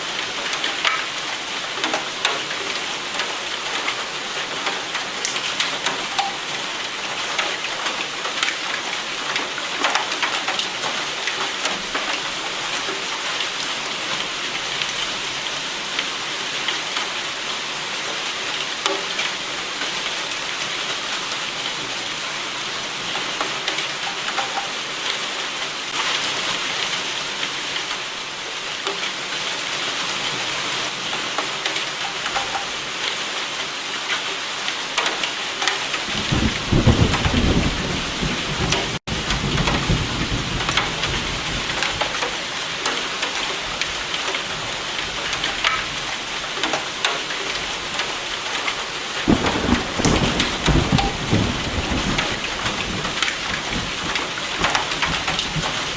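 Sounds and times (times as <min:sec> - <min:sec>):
steady rain: 0:00.0 - 0:55.9
raindrop hits: 0:49.2 - 0:55.9.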